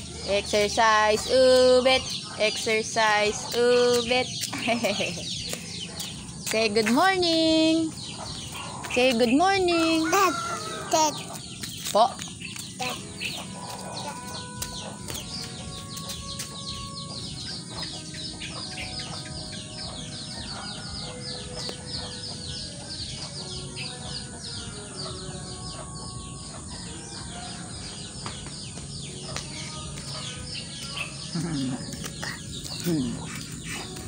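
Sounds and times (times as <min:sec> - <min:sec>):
chickens clucking: 0:01.2 - 0:24.4, 0:25.0 - 0:34.0
chicks peeping: 0:03.0 - 0:06.9, 0:07.7 - 0:34.0.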